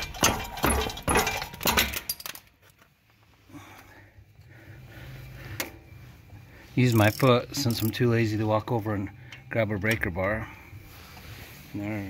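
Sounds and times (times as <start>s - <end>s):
ratchet clanking on metal: 0.0s - 2.4s, 6.9s - 8.1s.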